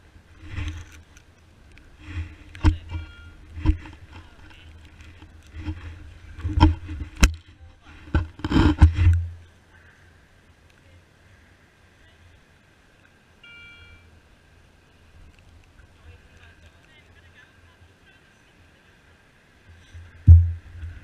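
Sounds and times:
brief high tone: 13.4s - 14.1s.

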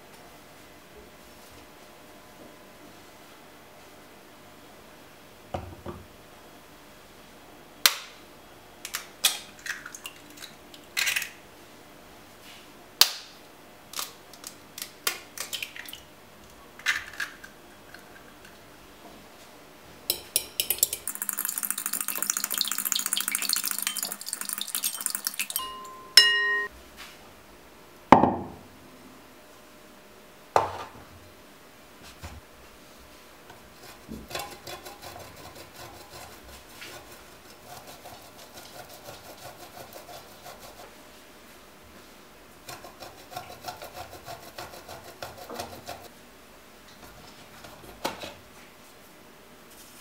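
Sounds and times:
eggs cracked on glass bowl: 20.1s - 26.6s
eggs beaten in glass bowl: 20.1s - 26.7s
ringing glass clink: 24.9s - 26.7s.

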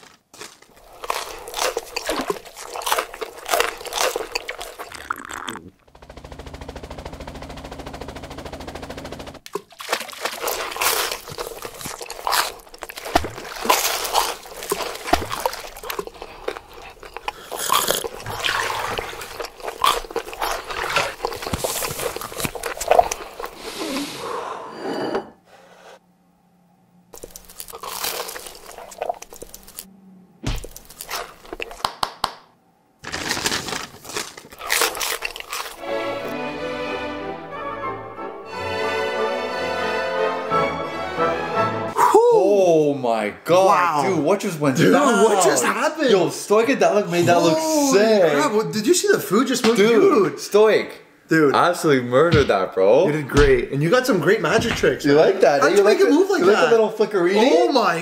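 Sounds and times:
food crunching and biting: 0.0s - 5.7s, 9.5s - 23.7s, 27.2s - 29.9s, 30.5s - 32.0s, 33.0s - 35.8s
steady low buzz: 5.8s - 9.4s
paper wrappers crinkling: 10.4s - 23.6s, 33.0s - 35.8s.

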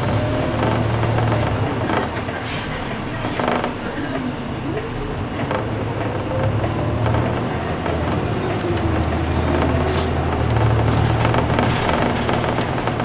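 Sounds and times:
bus engine humming: 0.0s - 13.0s
sharp clicks or rattles: 8.1s - 13.0s.

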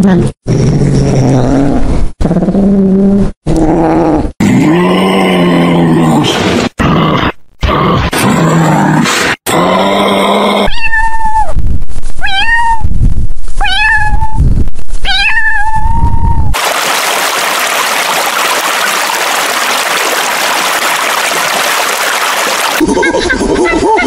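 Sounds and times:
cat meowing: 10.7s - 11.6s, 12.2s - 12.9s, 13.6s - 14.4s, 15.0s - 16.5s.

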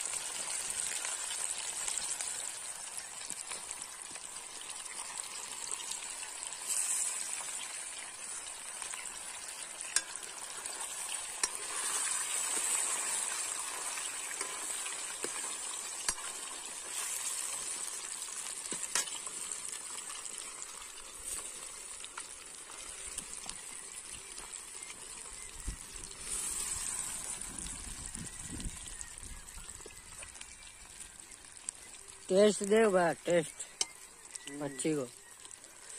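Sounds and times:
fish sizzling in hot oil: 0.0s - 35.9s
metal ladle clicking in pan: 9.9s - 10.2s.

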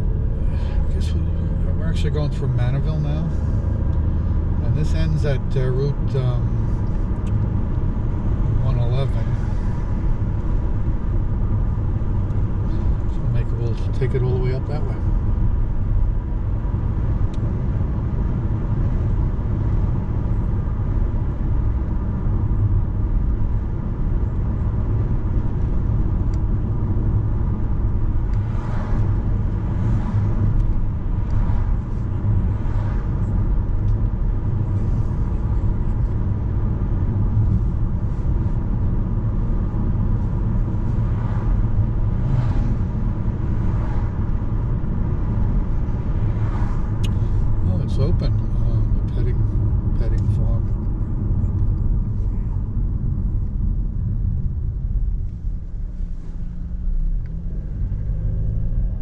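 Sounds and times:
car road and engine rumble: 0.0s - 59.0s
passing cars swishing: 27.0s - 47.8s.

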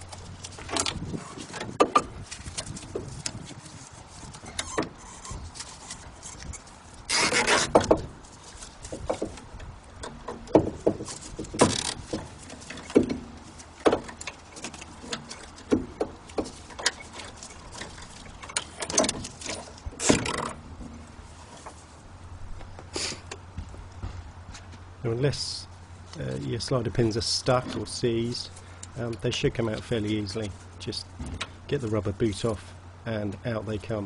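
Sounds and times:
hands clicking and knocking on brake: 8.8s - 20.6s.

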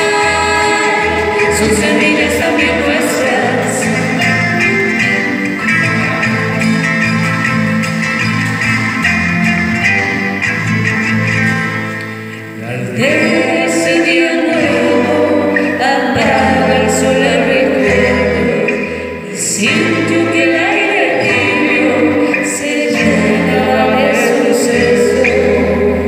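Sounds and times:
voices singing: 0.0s - 6.7s, 12.6s - 26.0s.

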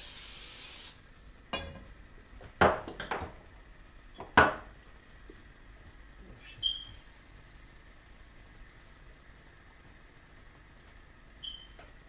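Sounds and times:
cooking oil spray hissing: 0.0s - 2.1s
pan clunking on hob grate: 1.5s - 1.9s.

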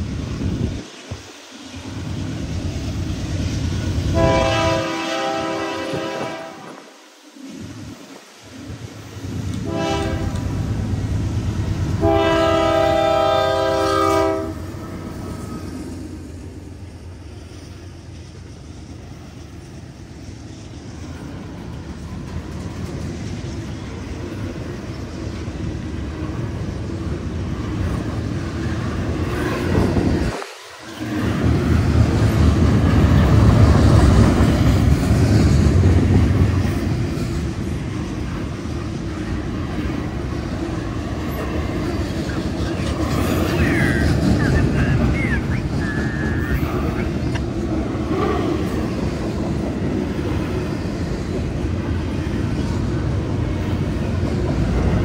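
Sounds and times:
freight train rumble passing: 0.0s - 55.0s
locomotive horn chord: 4.1s - 6.8s, 9.6s - 10.6s, 12.0s - 14.6s.

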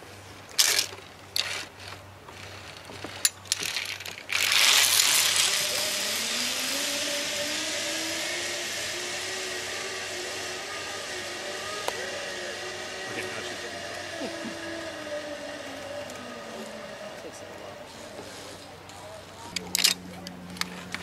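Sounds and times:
sharp metal clicks of carabiners: 0.6s - 5.5s, 19.5s - 21.0s
pulleys whirring along cable: 0.6s - 21.0s.

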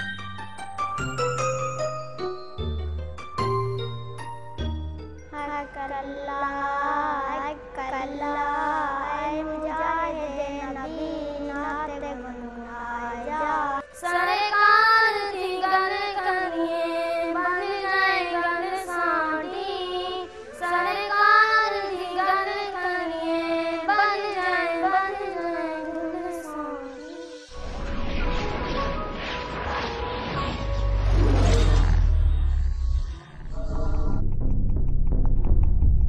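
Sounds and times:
child singing: 5.4s - 27.5s.

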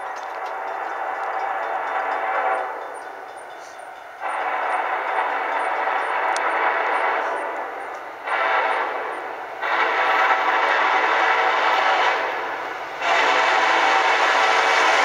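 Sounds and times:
locomotive air horn blasts: 3.6s - 15.0s.

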